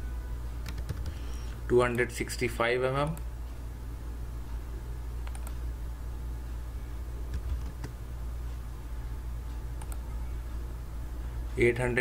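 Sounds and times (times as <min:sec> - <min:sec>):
low electrical hum: 0:00.0 - 0:12.0
keyboard and mouse clicks: 0:00.6 - 0:01.2, 0:05.2 - 0:05.6, 0:07.3 - 0:08.0, 0:09.8 - 0:10.0.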